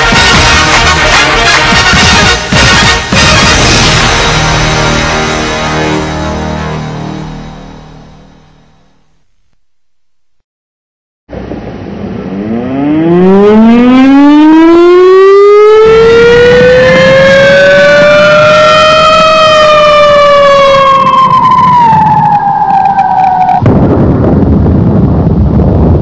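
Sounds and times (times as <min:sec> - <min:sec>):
tone gliding downward: 0:11.3 - 0:23.7
siren-like wailing tone: 0:12.2 - 0:23.8
wind buffeting microphone: 0:15.8 - 0:26.0.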